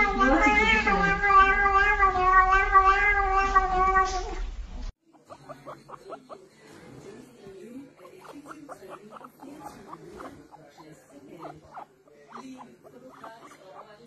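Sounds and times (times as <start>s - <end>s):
cat meowing: 0.0s - 4.4s
guinea pig squeaking: 5.1s - 14.0s.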